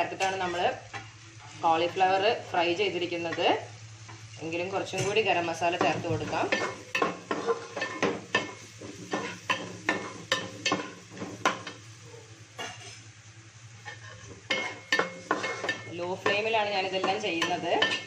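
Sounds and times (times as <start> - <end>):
faint sizzle: 0.0 - 18.0
metal spatula scraping metal pot: 13.8 - 18.0.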